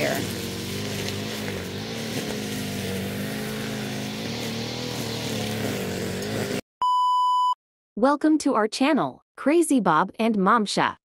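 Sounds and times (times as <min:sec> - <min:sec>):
engine hum: 0:00.0 - 0:06.6.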